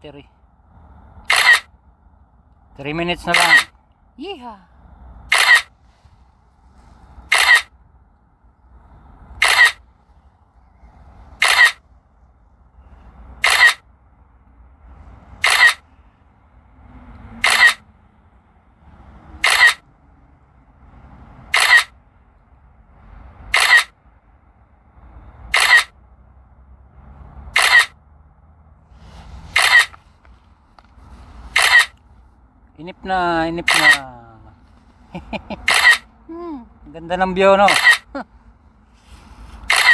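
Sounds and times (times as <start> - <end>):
camera shutter click: 1.3 - 1.7, 5.3 - 5.7, 7.3 - 7.7, 9.4 - 9.8, 11.4 - 11.8, 13.4 - 13.8, 15.4 - 15.8, 17.4 - 17.8, 19.4 - 19.8, 21.5 - 21.9, 23.5 - 23.9, 25.5 - 25.9, 27.6 - 27.9, 29.6 - 30.0, 31.5 - 31.9, 33.6 - 34.0, 35.6 - 36.0, 37.7 - 38.0, 39.6 - 39.9.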